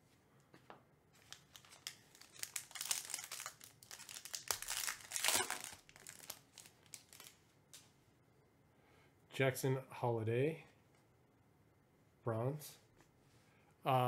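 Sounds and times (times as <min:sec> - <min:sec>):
foil wrapper tearing and crinkling: 0:01.2 - 0:07.4.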